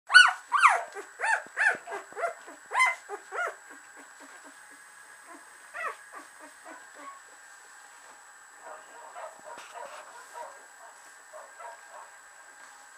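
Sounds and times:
puppies whining: 0:00.1 - 0:07.3.

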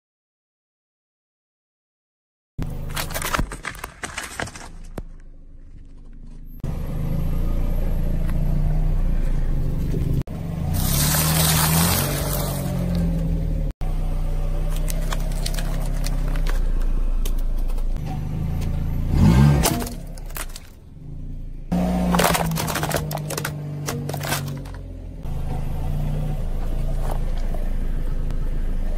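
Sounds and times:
tyre crushing small objects: 0:02.6 - 0:06.5, 0:10.8 - 0:13.1, 0:14.6 - 0:18.0, 0:19.4 - 0:20.8, 0:21.7 - 0:25.0
car engine running at low revs: 0:04.7 - 0:28.9.

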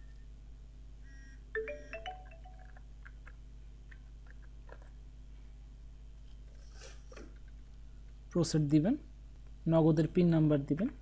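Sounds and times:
marimba-like notification tone: 0:01.6 - 0:02.7.

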